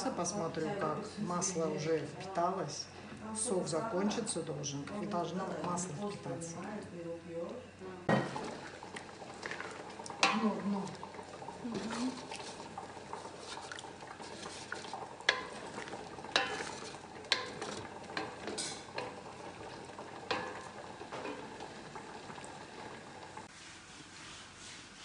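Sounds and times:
sauce bubbling and sizzling: 8.0 - 23.6.

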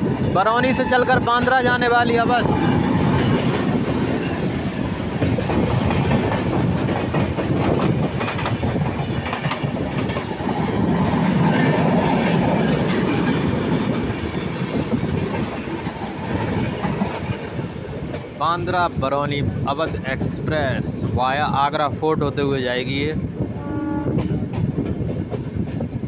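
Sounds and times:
train coaches rushing past: 0.0 - 21.1
wheels clicking over rail joints: 2.9 - 18.4.

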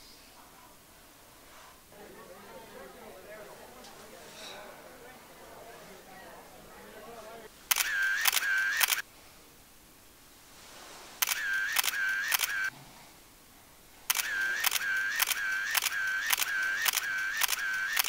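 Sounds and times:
camera shutter clicks: 7.7 - 9.0, 11.2 - 12.7, 14.1 - 18.0.

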